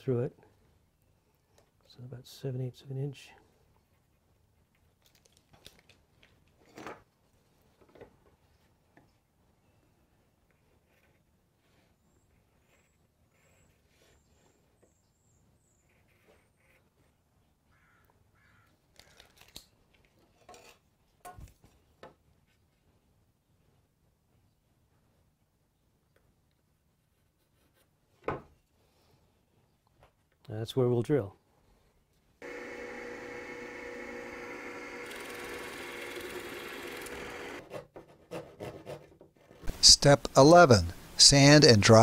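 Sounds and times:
drill bit cutting wood hiss: 0:32.4 - 0:37.6
electric drill motor running: 0:32.4 - 0:37.6.

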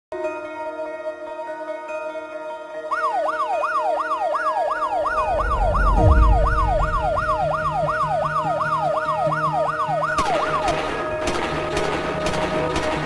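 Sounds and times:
background music: 0:00.2 - 0:13.0
yelping siren sound effect: 0:04.8 - 0:09.9
low whoosh: 0:05.0 - 0:08.6.

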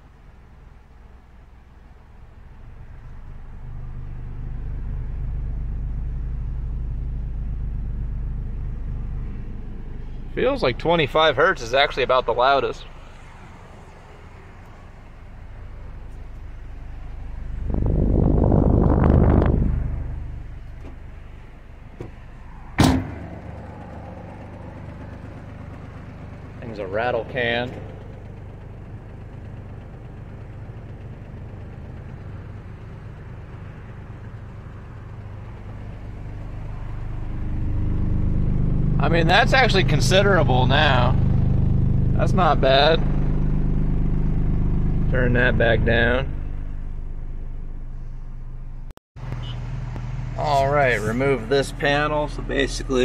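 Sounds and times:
deep subwoofer test tone rumble: 0:02.6 - 0:13.0, 0:15.3 - 0:30.6, 0:35.8 - 0:48.9
low sine-wave test tone: 0:02.7 - 0:10.8
sharp knock: 0:22.8 - 0:23.6.

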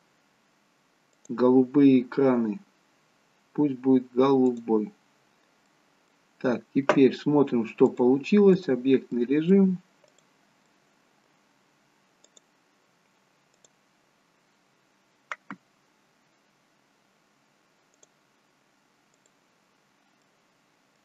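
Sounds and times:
computer mouse clicks: 0:01.1 - 0:01.4, 0:10.0 - 0:10.8, 0:12.2 - 0:12.5, 0:13.5 - 0:13.8, 0:15.3 - 0:15.6, 0:17.9 - 0:18.2, 0:19.1 - 0:19.4.

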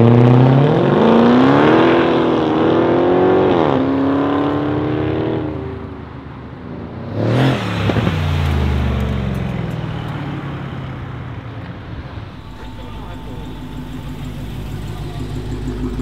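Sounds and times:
car engine revving: 0:00.0 - 0:05.4, 0:11.8 - 0:16.0
car engine accelerating away: 0:11.9 - 0:16.0.

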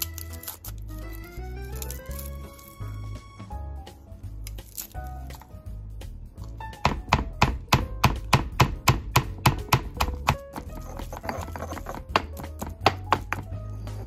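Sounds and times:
background music: 0:00.0 - 0:14.0
pestle pounding in stone mortar: 0:06.8 - 0:13.6.

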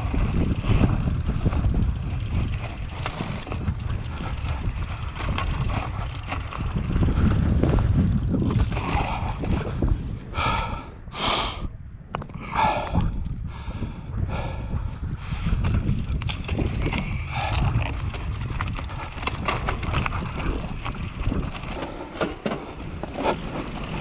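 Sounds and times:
tyres rumbling over dirt: 0:00.0 - 0:09.5, 0:15.6 - 0:24.0
bike rattling: 0:00.0 - 0:10.1, 0:14.8 - 0:24.0
wind on microphone: 0:00.0 - 0:24.0.

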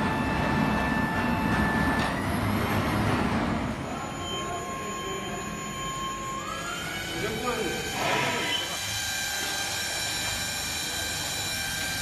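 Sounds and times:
hydraulic pump motor droning: 0:00.0 - 0:12.0.

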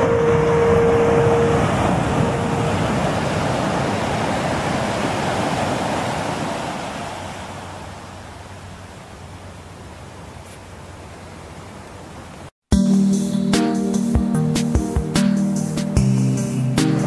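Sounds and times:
ocean surf rushing: 0:00.0 - 0:12.5.

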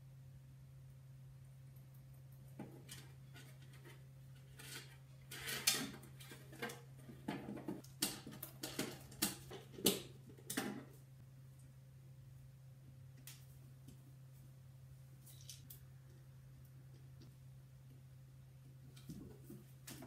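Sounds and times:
wires rustling: 0:01.8 - 0:11.7
steady low hum: 0:10.1 - 0:20.0.

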